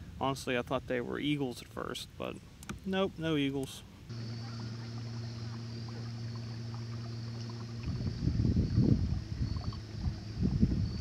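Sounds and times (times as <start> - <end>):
motor humming: 4.1 - 11.0.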